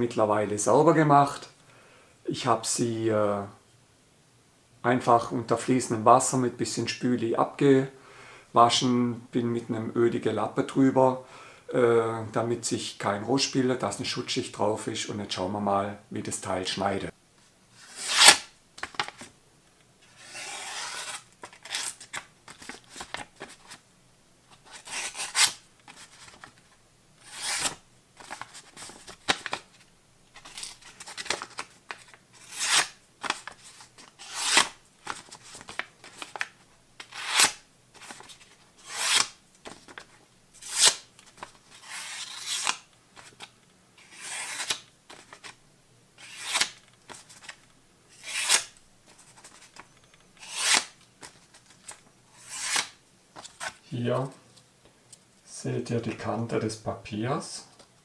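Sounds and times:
knife slicing paper: 0:17.8 - 0:18.5, 0:20.1 - 0:22.1, 0:24.6 - 0:25.6, 0:27.2 - 0:28.4, 0:30.4 - 0:36.4, 0:37.0 - 0:38.2, 0:38.8 - 0:39.4, 0:40.6 - 0:41.1, 0:41.7 - 0:42.8, 0:44.0 - 0:45.4, 0:46.2 - 0:46.8, 0:48.1 - 0:48.8, 0:50.4 - 0:51.0, 0:52.4 - 0:53.0
paper rustling: 0:20.0 - 0:23.8, 0:24.5 - 0:43.5, 0:44.1 - 0:45.6, 0:48.3 - 0:53.8.

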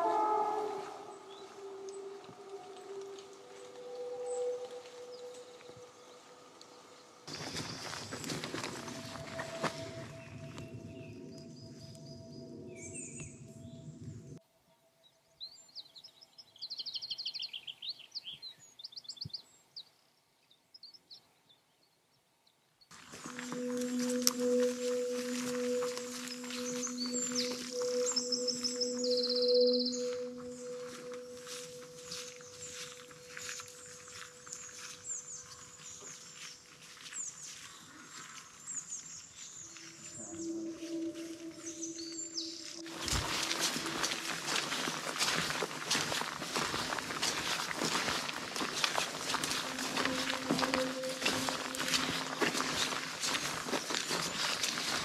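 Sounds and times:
held musical tone: 0:00.0 - 0:14.4, 0:23.0 - 0:35.8, 0:39.9 - 0:55.0
small songbird singing: 0:15.4 - 0:19.9, 0:23.3 - 0:33.0
high bird chirps: 0:23.0 - 0:36.5
soft crackling and rustling: 0:42.8 - 0:55.0.

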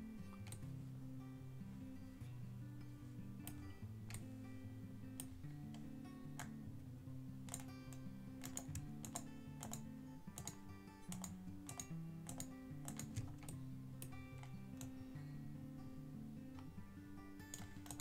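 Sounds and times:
quiet background music: 0:00.0 - 0:18.0
computer keys clicking: 0:00.4 - 0:00.6, 0:03.4 - 0:04.3, 0:05.2 - 0:06.6, 0:07.4 - 0:15.0, 0:17.4 - 0:18.0.

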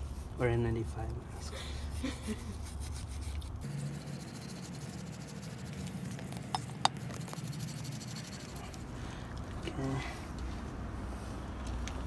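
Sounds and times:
wire brush scrubbing metal: 0:01.8 - 0:06.0, 0:06.9 - 0:08.9.

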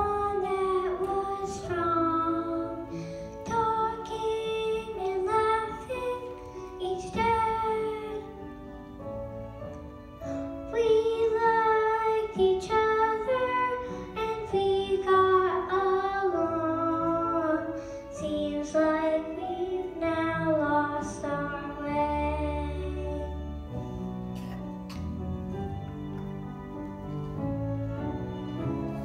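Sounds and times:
child singing: 0:00.0 - 0:02.8, 0:03.4 - 0:08.2, 0:10.7 - 0:23.3
instrumental accompaniment: 0:00.0 - 0:29.0.

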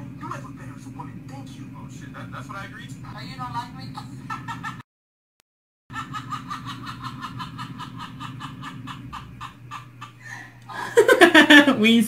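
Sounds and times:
steady low hum: 0:00.0 - 0:04.8, 0:06.0 - 0:12.0
rapid laughter: 0:04.0 - 0:04.8, 0:05.9 - 0:11.7.

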